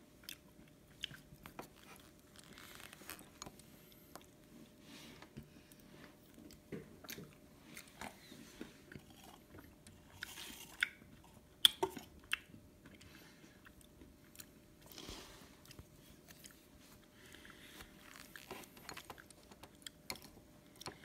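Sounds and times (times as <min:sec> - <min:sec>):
person chewing and crunching: 0:00.2 - 0:04.4, 0:08.9 - 0:21.0
soft crackles: 0:01.4 - 0:06.6, 0:14.8 - 0:19.7.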